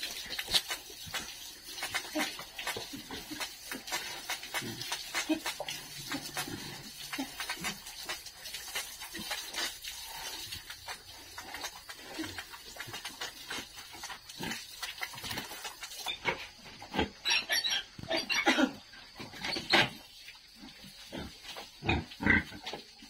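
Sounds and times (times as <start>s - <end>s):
hose water splashing on floor: 0.0s - 16.4s
pigs grunting: 1.7s - 20.0s, 20.6s - 22.8s.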